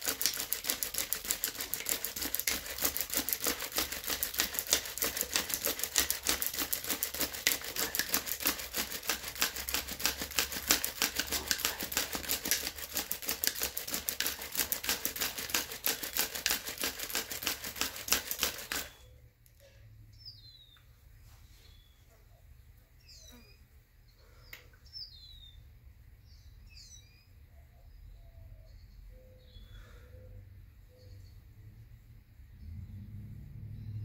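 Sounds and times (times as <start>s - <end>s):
bow drill rasping wood on wood: 0.0s - 19.0s
faint bird chirps: 18.9s - 25.7s, 26.3s - 31.7s.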